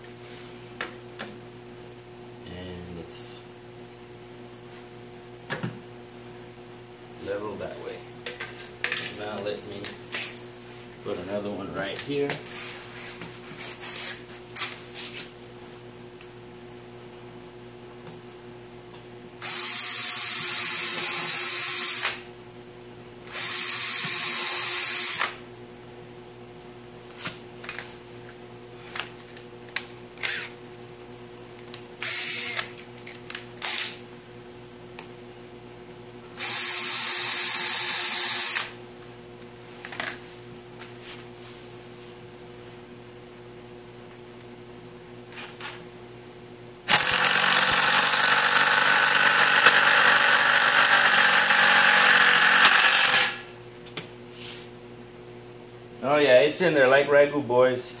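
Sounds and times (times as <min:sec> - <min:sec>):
cordless drill driving a screw: 0:19.4 - 0:22.2, 0:23.3 - 0:25.4, 0:30.2 - 0:30.6, 0:32.0 - 0:32.7, 0:33.6 - 0:34.0, 0:36.4 - 0:38.7, 0:46.9 - 0:53.4.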